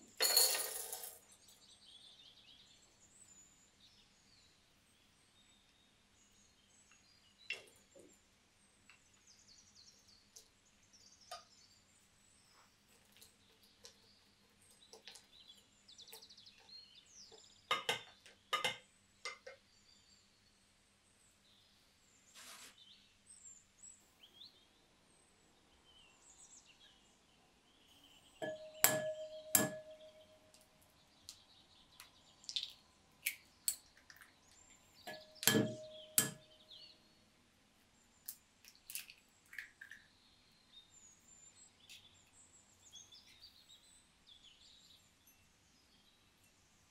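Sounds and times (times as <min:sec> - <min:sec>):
birds chirping faintly: 0:00.0 - 0:46.9
eggs knocked on glass bowl: 0:28.4 - 0:30.2, 0:35.1 - 0:36.5.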